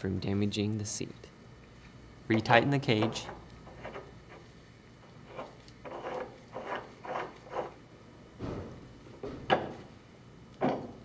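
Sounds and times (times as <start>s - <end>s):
metal rubbing and scraping: 3.2s - 4.5s, 5.2s - 7.8s.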